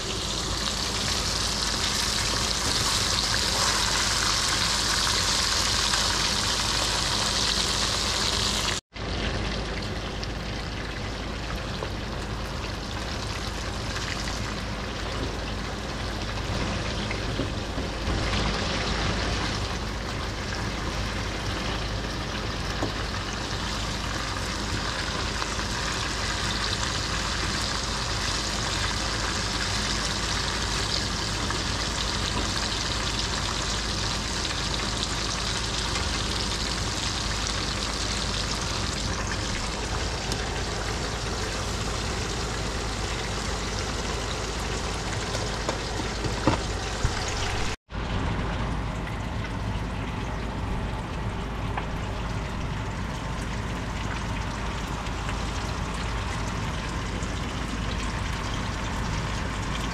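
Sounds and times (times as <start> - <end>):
oil sizzling in a skillet: 0.0 - 8.8, 12.2 - 47.8.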